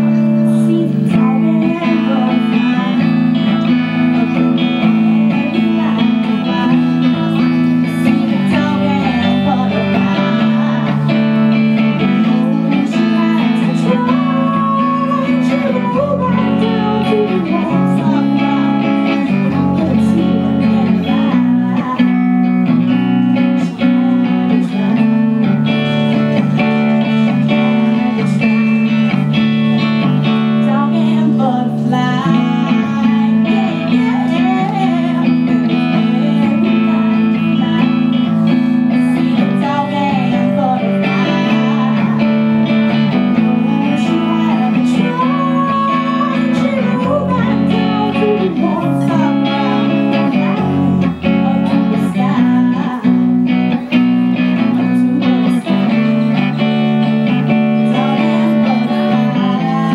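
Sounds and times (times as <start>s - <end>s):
electric guitars playing chords: 0.0s - 59.9s.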